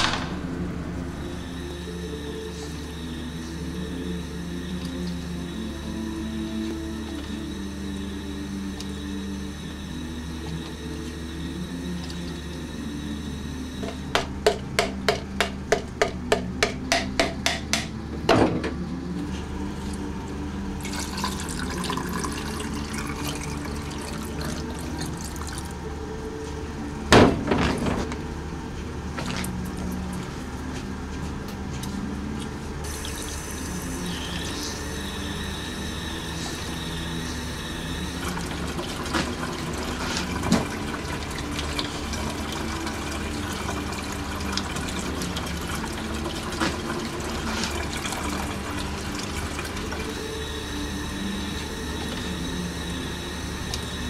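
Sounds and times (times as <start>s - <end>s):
low background music: 0.0s - 54.0s
liquid pouring and splashing: 20.8s - 25.8s, 38.2s - 50.2s.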